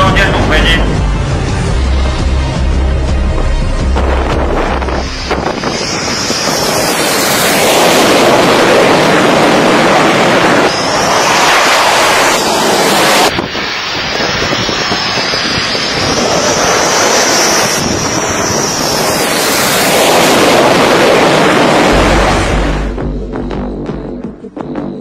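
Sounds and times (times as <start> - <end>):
low music: 0.0 - 5.4, 22.0 - 25.0
jet engines roaring: 0.0 - 24.5
high engine whine: 0.0 - 25.0.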